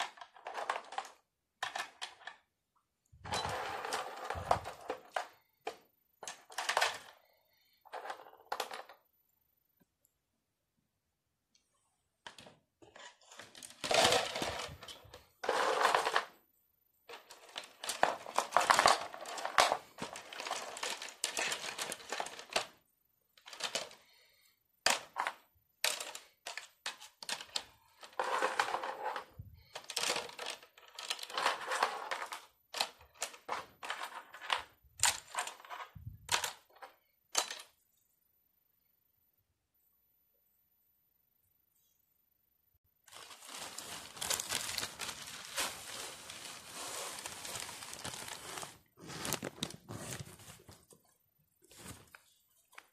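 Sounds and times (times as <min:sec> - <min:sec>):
metal tubes clattering into plastic bucket: 0:00.0 - 0:02.3, 0:06.2 - 0:07.2, 0:12.3 - 0:16.3, 0:17.1 - 0:22.7, 0:23.4 - 0:24.0, 0:24.9 - 0:37.7.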